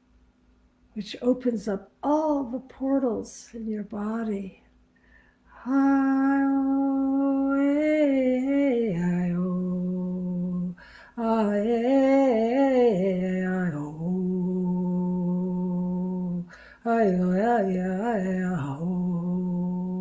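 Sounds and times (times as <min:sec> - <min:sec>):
woman singing wordlessly: 0:01.0 - 0:04.6, 0:05.5 - 0:20.0
woman breathing: 0:04.9 - 0:05.7, 0:10.8 - 0:11.2, 0:16.5 - 0:16.8.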